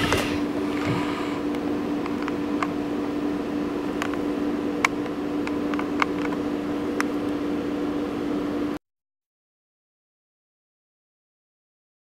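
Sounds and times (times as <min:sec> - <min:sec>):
steady hum with hiss: 0:00.0 - 0:08.8.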